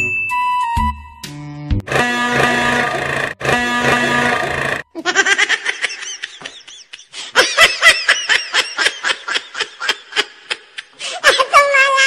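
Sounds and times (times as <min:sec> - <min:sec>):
high-pitched laughter: 0:04.9 - 0:12.0.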